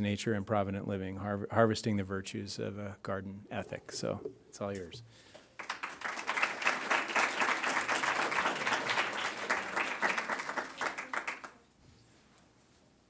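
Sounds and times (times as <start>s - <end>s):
audience applause: 5.6s - 11.6s.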